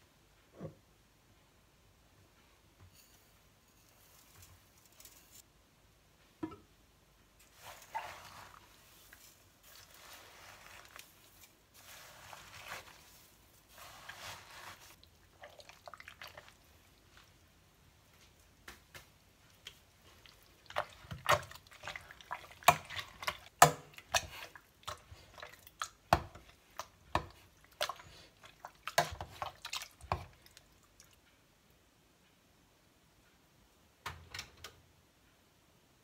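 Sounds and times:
metal spatula scraping a pot: 7.5 - 15.0
wet squelching of fruit: 7.5 - 17.3, 19.1 - 31.2.

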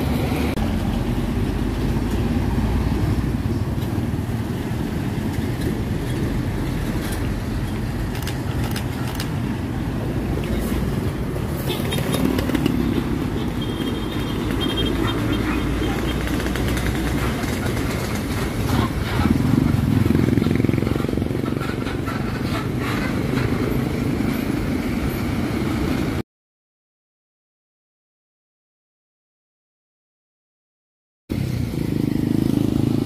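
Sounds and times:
truck diesel engine: 0.0 - 26.1
street traffic passing: 0.0 - 26.2, 31.3 - 33.0
motorcycle engine: 11.4 - 23.8.

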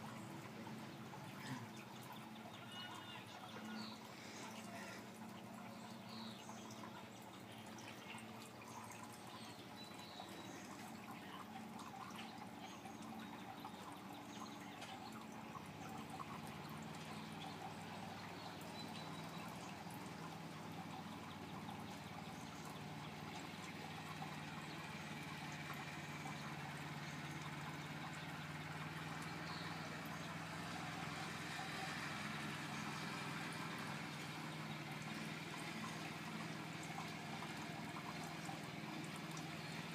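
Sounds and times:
faint bird chirps: 0.0 - 33.2
water trickling into pool: 0.0 - 39.9.

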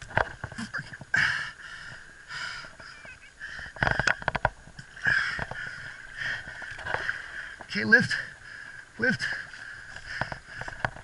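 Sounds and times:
man breathing hard: 1.1 - 2.8
sharp clicks and knocks: 3.6 - 5.7.

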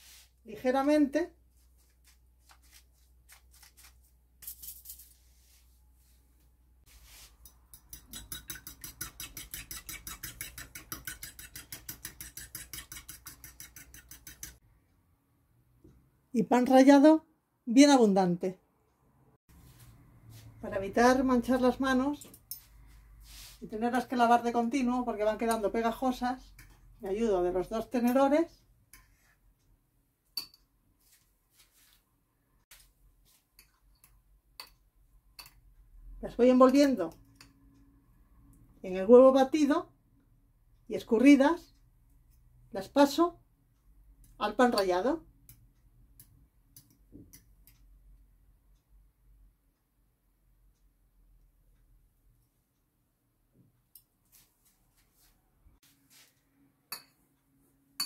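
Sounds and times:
fork beating eggs in a bowl: 7.2 - 14.6.

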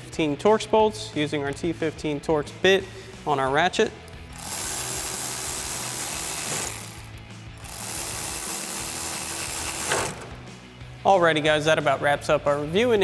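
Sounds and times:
cordless electric ratchet running: 4.3 - 10.4.

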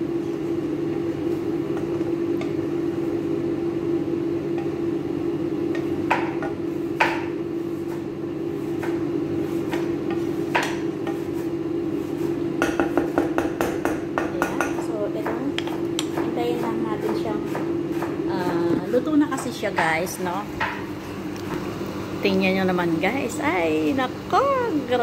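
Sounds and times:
steady low hum: 0.0 - 25.0
utensil knocking against pan: 5.7 - 7.3, 12.6 - 16.3, 20.6 - 20.9.

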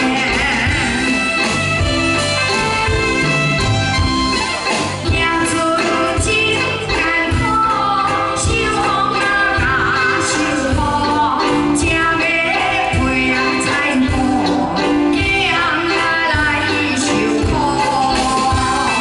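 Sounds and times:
woman singing into microphone: 0.0 - 1.1, 5.0 - 19.0
live band playing a beat: 0.0 - 19.0.

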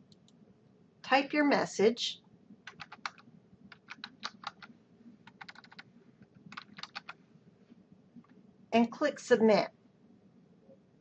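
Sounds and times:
keyboard typing clicks: 2.6 - 5.9, 6.5 - 7.2.

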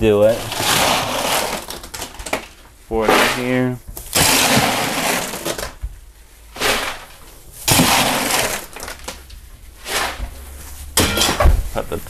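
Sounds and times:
ice cubes clattering: 6.6 - 9.2.

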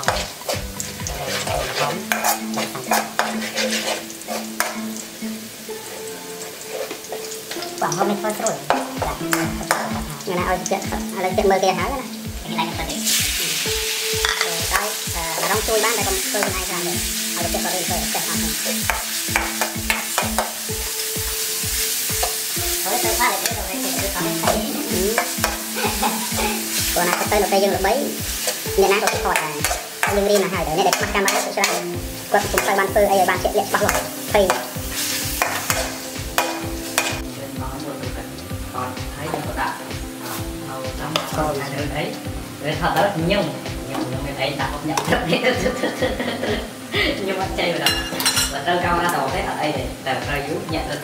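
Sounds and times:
metal spatula scraping wok: 0.0 - 7.7, 17.4 - 37.2
chicken sizzling in hot oil: 0.0 - 51.0
faint background music: 0.0 - 51.0.

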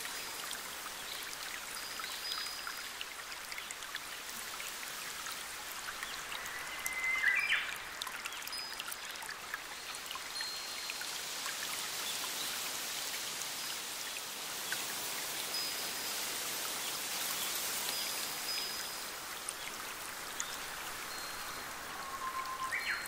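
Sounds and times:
stream running over stones: 0.0 - 23.0.

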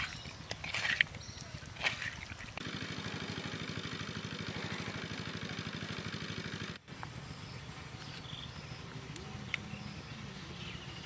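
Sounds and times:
small engine running: 2.6 - 10.7.

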